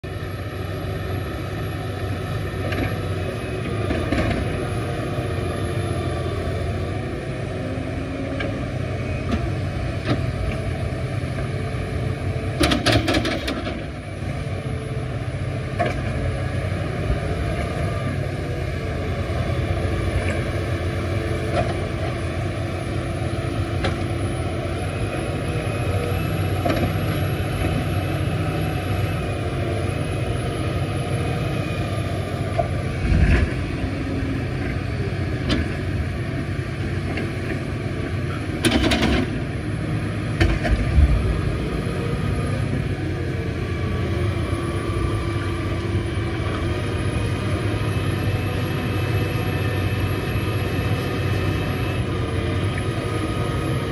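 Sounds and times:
excavator engine drone: 0.0 - 53.9.

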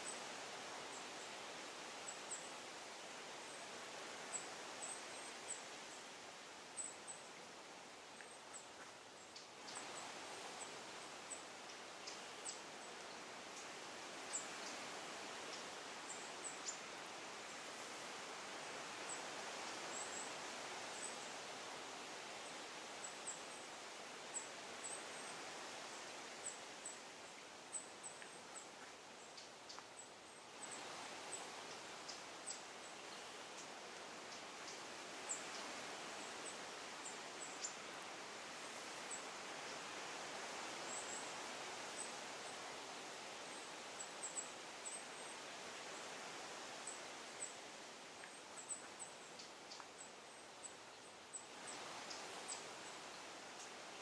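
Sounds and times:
steady rustling hiss: 0.0 - 54.0
faint high-pitched ticks: 8.2 - 10.0, 28.0 - 30.1, 48.2 - 50.7.

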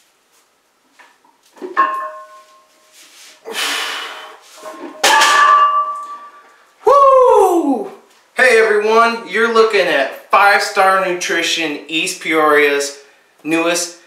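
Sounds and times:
rustling scuff: 0.0 - 3.4
metal weights clanking: 1.8 - 2.7, 4.6 - 6.4.

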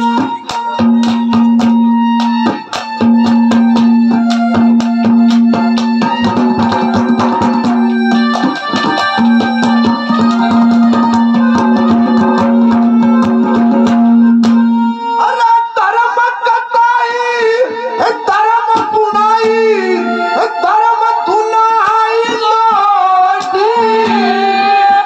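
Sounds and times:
fast steady drumming: 0.0 - 14.7
keyboard melody: 0.0 - 15.9, 18.0 - 25.0.

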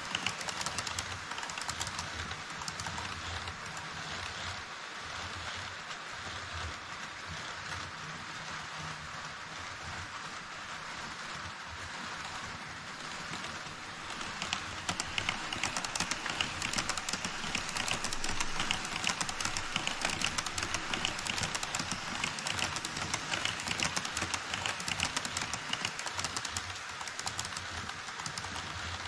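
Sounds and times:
wheels clicking over rail joints: 0.0 - 4.5, 12.2 - 29.0
model train rushing on track: 0.0 - 29.0.

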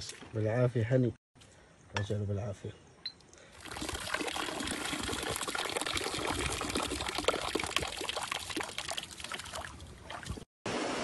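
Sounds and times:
stream water flowing and trickling: 3.1 - 10.5.

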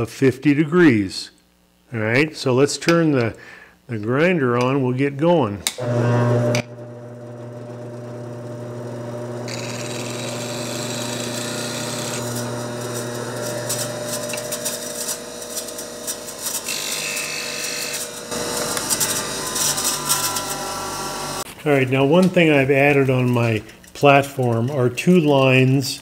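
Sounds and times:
bench grinder motor hum: 5.7 - 21.5
steel rasping on grinding wheel: 7.9 - 21.4.

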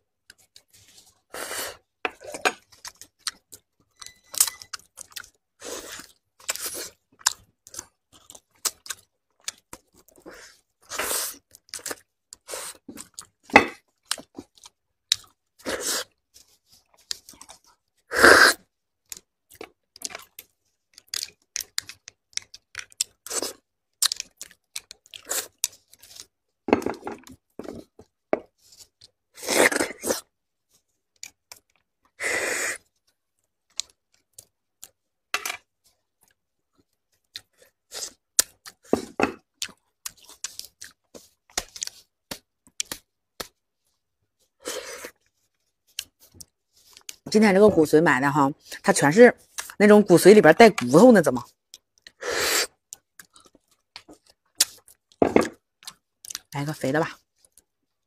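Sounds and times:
wet chewing and sucking: 0.3 - 3.7, 4.5 - 26.4, 35.6 - 47.3, 51.5 - 56.5
loud slurps: 18.1 - 18.6.

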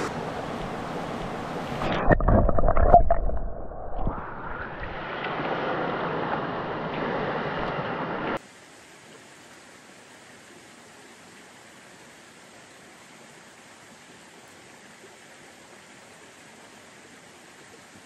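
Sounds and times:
stream rushing heard under water: 0.0 - 18.0
faint steady hiss: 8.4 - 18.0.

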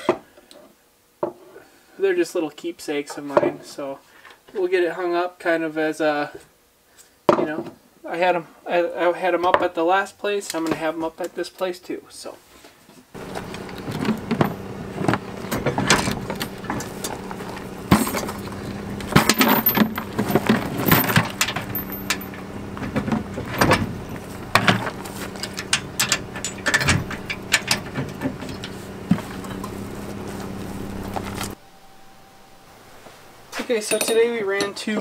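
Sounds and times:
knocks and scrapes: 13.2 - 31.6
metal chains clinking and rattling: 13.2 - 31.6, 33.2 - 35.0
steady engine hum: 13.2 - 33.6.

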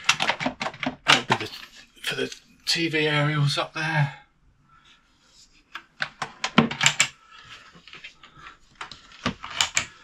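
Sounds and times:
cupboard doors clicking and knocking: 0.0 - 1.5, 6.0 - 7.1.

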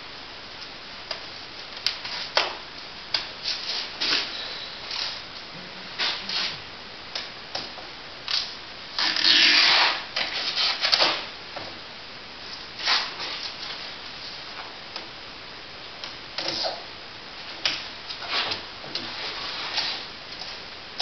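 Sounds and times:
masking tape ripping off roll: 8.3 - 11.3, 12.8 - 13.6.

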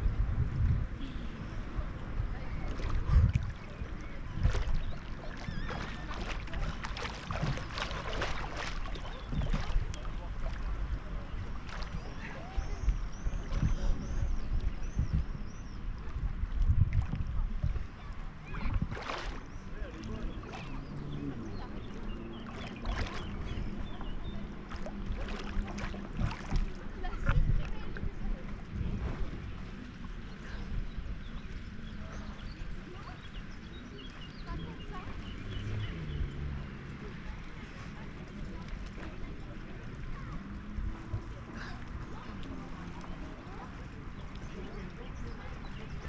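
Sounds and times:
sea water splashing and lapping: 0.8 - 46.0
swimming stroke splashes: 2.5 - 14.2, 18.2 - 28.2
water thumping against camera: 4.3 - 10.7, 16.0 - 20.8, 21.8 - 29.4.

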